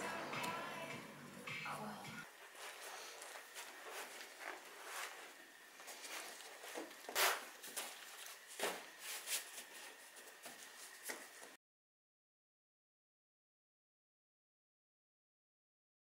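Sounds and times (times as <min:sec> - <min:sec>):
vinyl rustling and rubbing: 0:02.4 - 0:11.6.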